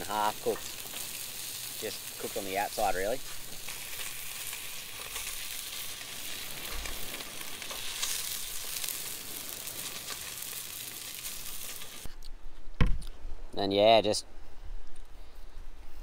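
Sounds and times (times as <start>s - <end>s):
fish sizzling on a grill plate: 0.0s - 12.1s.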